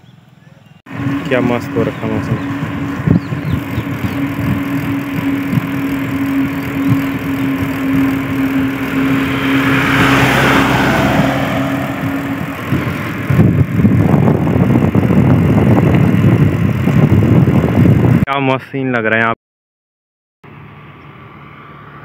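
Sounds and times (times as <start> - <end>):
low riding hum: 0.0 - 18.3, 20.4 - 22.0
wind rushing over microphone: 0.9 - 18.3.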